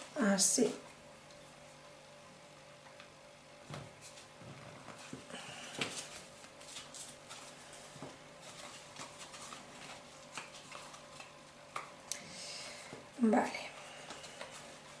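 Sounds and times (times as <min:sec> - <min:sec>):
paper rustling and scraping: 0:03.9 - 0:11.5.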